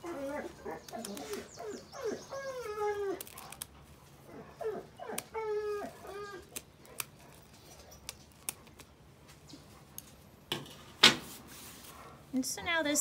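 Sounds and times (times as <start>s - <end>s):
scissors snipping feathers: 0.8s - 1.6s, 3.1s - 3.7s, 5.1s - 8.9s.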